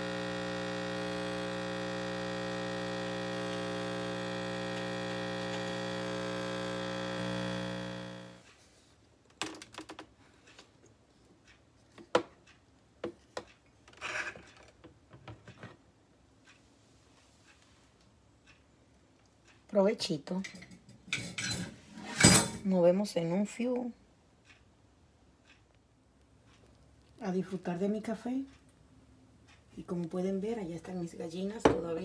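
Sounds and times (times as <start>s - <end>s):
espresso machine pump buzzing: 0.0s - 8.4s.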